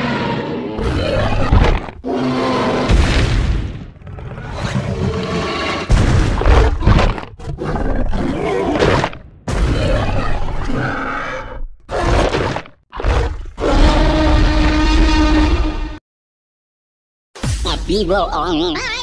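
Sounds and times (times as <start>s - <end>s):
dinosaur roars and growls: 0.0s - 3.1s, 4.0s - 16.0s.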